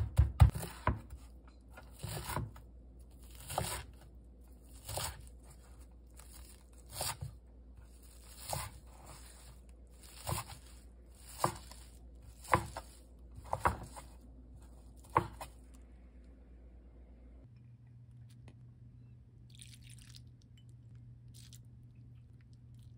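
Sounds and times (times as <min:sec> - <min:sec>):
knife slicing chives on board: 0:06.9 - 0:07.3, 0:08.3 - 0:14.2.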